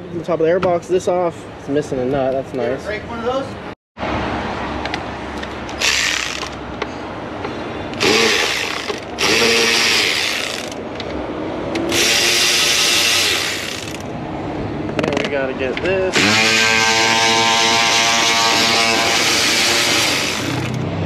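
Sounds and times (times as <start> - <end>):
power driver spinning fasteners: 5.4 - 6.6, 7.9 - 11.1, 11.8 - 14.1, 16.2 - 20.8.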